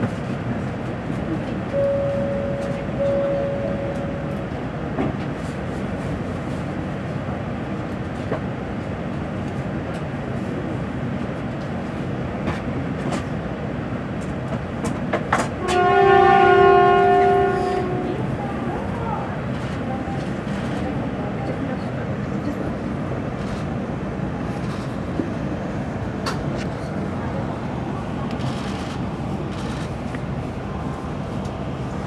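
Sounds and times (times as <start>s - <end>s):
station and train noise: 0.0s - 32.0s
train air horn blast: 15.6s - 18.1s.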